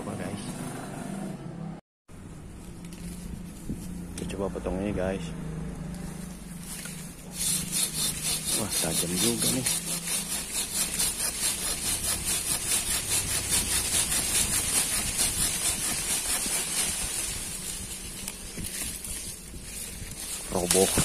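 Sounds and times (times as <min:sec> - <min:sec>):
hand saw cutting a branch: 0:05.9 - 0:21.0.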